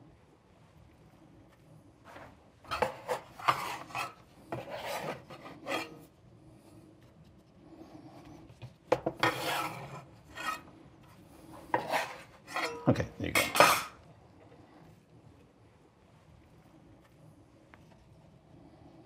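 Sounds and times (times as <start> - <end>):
knife scraping wooden board: 2.1 - 6.1, 8.6 - 10.7, 11.5 - 12.9
knife cutting dough: 2.2 - 6.1, 8.6 - 10.7, 11.6 - 12.9.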